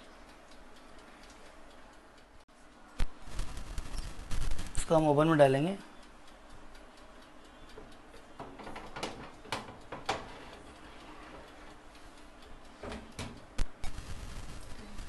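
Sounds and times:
baking tray clicks and knocks: 8.4s - 10.8s, 12.8s - 13.5s.

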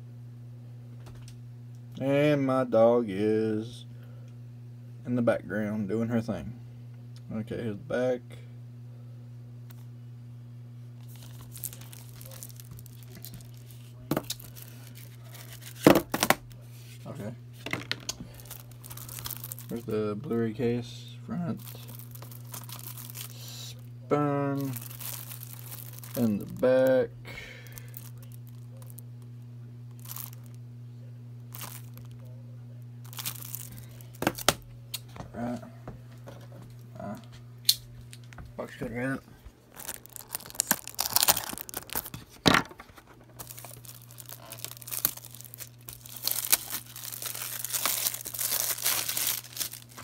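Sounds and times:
low hum: 6.5s - 50.0s
plastic shrink wrap crinkling: 11.0s - 20.0s, 21.5s - 29.2s, 29.9s - 30.6s, 31.4s - 34.7s, 39.4s - 50.0s.

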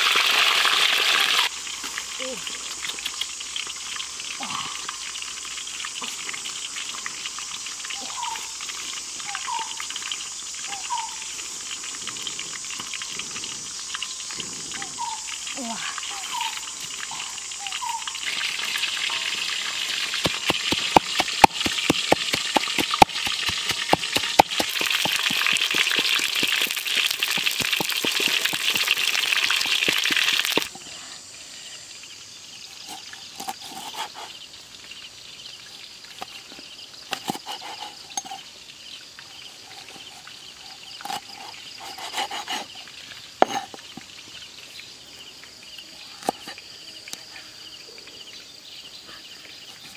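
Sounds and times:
fish sizzling in hot oil: 0.0s - 30.8s, 32.0s - 45.8s
cleaver knocking on wooden board: 20.2s - 28.7s.

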